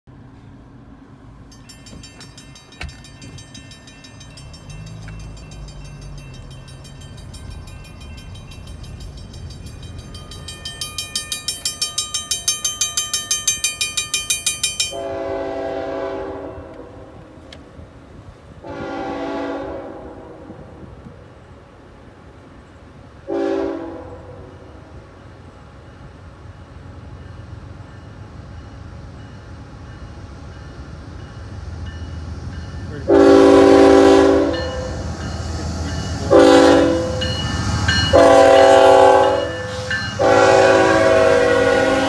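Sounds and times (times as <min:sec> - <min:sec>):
railroad crossing bell ringing: 0:01.1 - 0:17.3, 0:22.7 - 0:42.0
locomotive air horn blasts: 0:14.9 - 0:17.4, 0:18.6 - 0:20.8, 0:23.3 - 0:24.5, 0:33.1 - 0:35.0, 0:36.3 - 0:37.2, 0:38.1 - 0:42.0.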